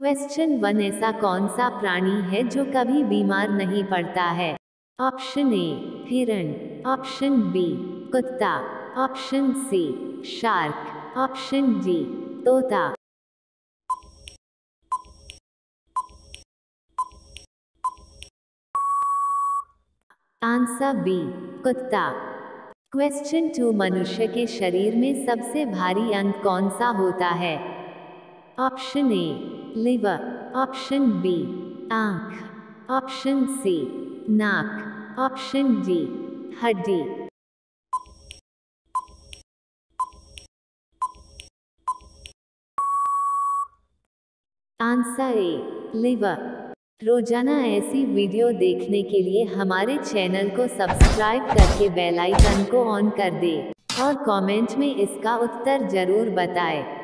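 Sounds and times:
steady beep: 0:18.8 - 0:19.7.

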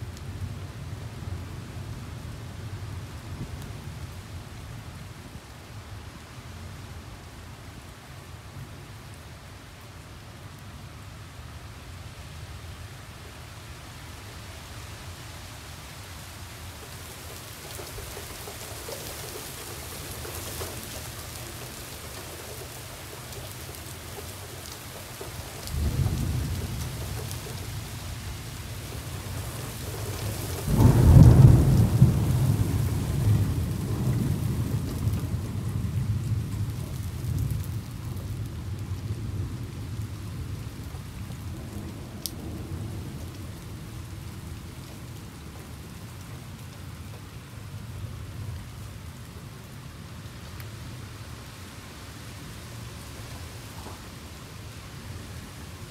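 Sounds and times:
steady rain: 0:00.0 - 0:55.9
thunder rumbling: 0:16.8 - 0:46.1
thunder peal: 0:30.6 - 0:35.6.

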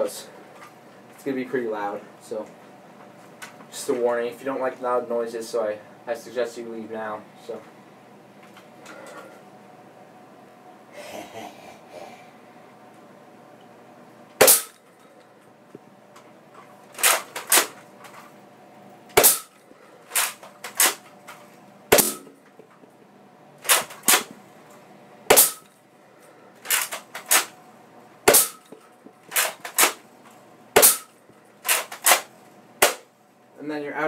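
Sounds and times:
toy blaster firing snaps: 0:14.4 - 0:14.8, 0:17.0 - 0:17.8, 0:19.2 - 0:21.0, 0:23.6 - 0:24.3, 0:25.3 - 0:25.7, 0:28.3 - 0:28.7, 0:30.8 - 0:33.1.

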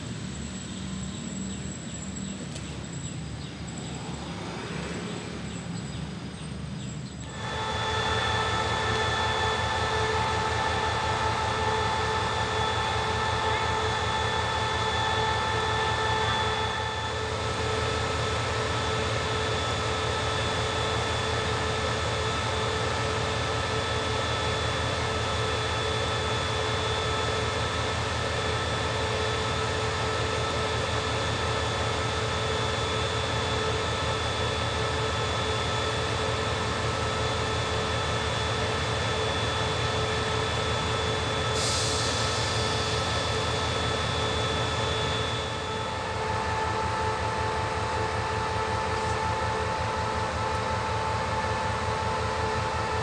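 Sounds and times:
constant engine whine: 0:00.0 - 0:53.0
locomotive engine idling: 0:06.6 - 0:52.9
high hiss: 0:41.4 - 0:46.0.

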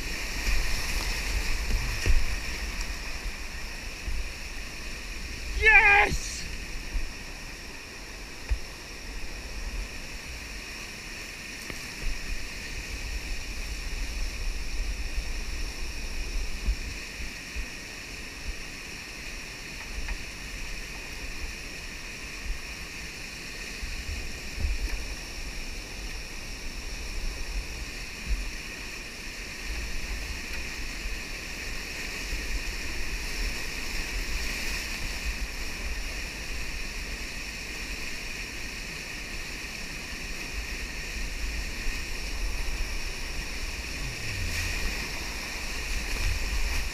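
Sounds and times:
whitewater rapids rushing: 0:00.0 - 0:16.2, 0:31.0 - 0:46.9.

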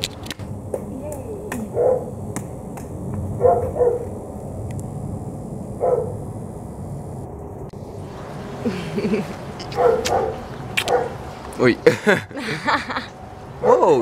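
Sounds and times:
steady hiss: 0:00.0 - 0:14.0
dog barking: 0:01.7 - 0:02.1, 0:03.4 - 0:04.1, 0:05.8 - 0:06.2, 0:09.7 - 0:11.2, 0:13.6 - 0:13.9.

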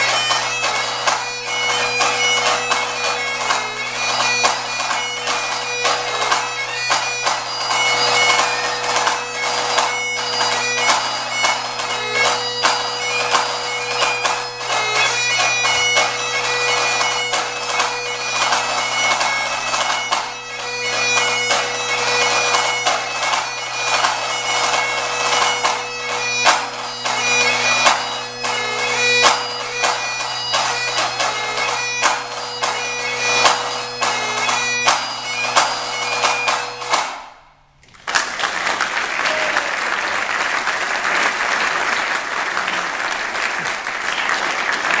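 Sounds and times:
bagpipe tune over drones: 0:00.0 - 0:37.2
audience applauding: 0:37.8 - 0:45.0.

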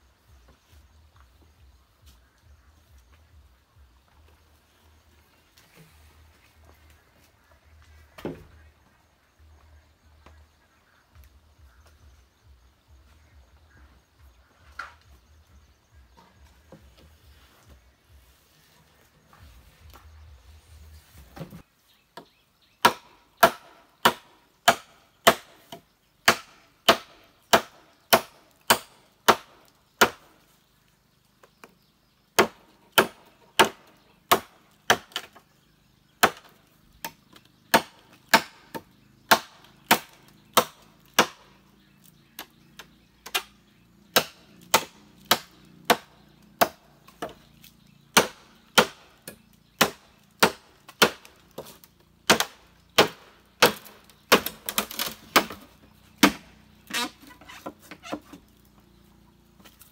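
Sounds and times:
machete chopping bamboo: 0:22.2 - 0:30.4, 0:32.3 - 0:35.5, 0:36.1 - 0:58.4.

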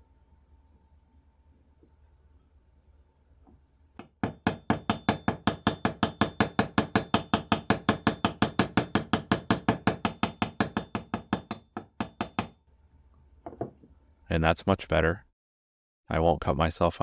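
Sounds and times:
hammer tapping on metal: 0:04.0 - 0:12.6.

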